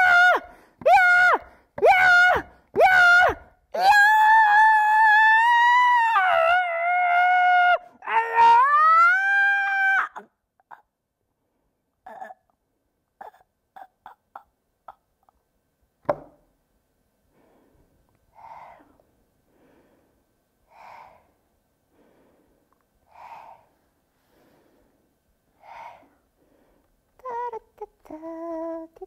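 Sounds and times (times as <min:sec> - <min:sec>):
slow breathing: 0:17.2 - 0:27.2.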